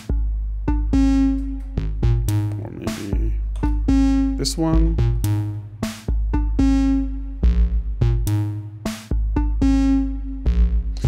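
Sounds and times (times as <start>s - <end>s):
drum machine hits: 0.0s - 11.0s
synthesizer step sequence: 0.0s - 11.0s.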